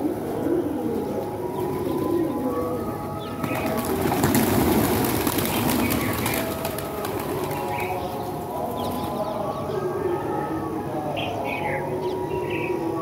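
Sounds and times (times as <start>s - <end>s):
pigeons cooing: 0.0s - 13.0s
pigeon wings flapping: 3.4s - 7.9s.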